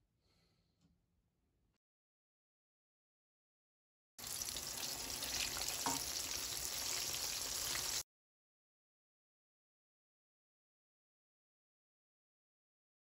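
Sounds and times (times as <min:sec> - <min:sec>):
eggplant sizzling in hot oil: 0:04.2 - 0:08.0.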